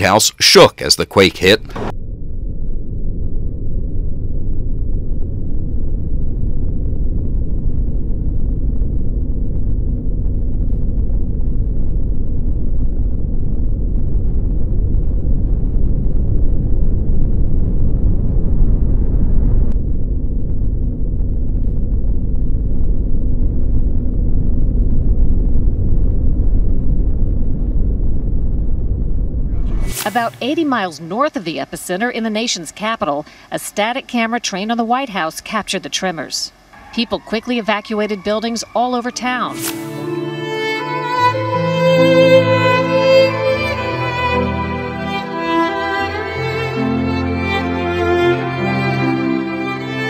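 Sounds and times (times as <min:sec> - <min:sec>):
deep earthquake rumble: 0:01.4 - 0:33.4.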